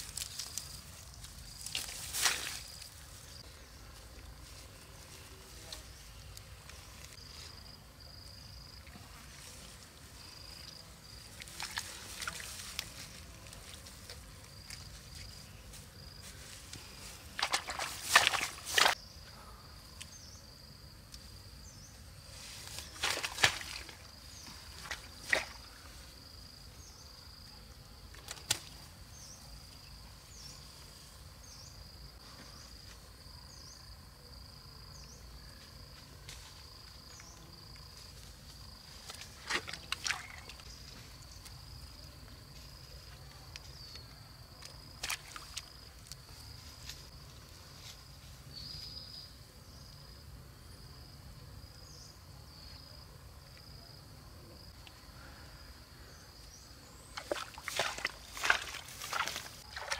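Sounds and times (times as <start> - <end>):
rustling grass: 0.0 - 8.4, 9.0 - 19.0, 57.2 - 59.9
high-pitched insect call: 54.6 - 59.9.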